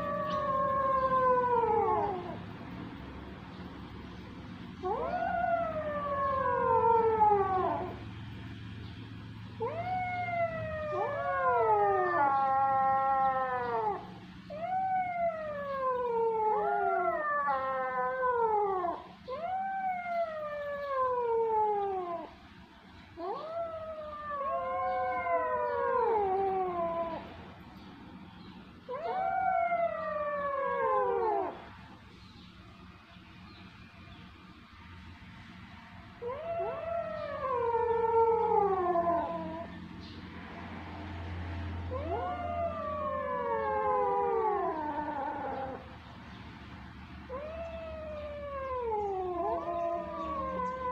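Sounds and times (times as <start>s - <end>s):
kittens meowing: 47.3s - 50.9s.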